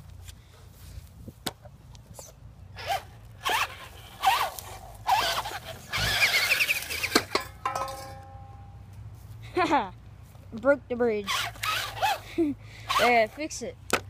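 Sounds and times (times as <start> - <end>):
toy truck electric motor revving: 2.8 - 7.3, 11.2 - 13.4.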